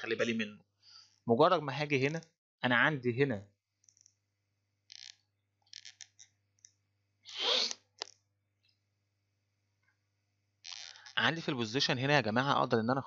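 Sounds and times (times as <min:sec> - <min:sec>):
breath noise close to microphone: 0:00.8 - 0:01.2.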